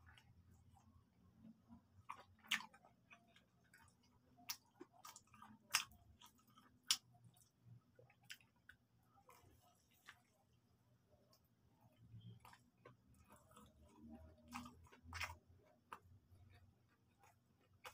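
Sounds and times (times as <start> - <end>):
person chewing crunchy food: 0.0 - 17.9.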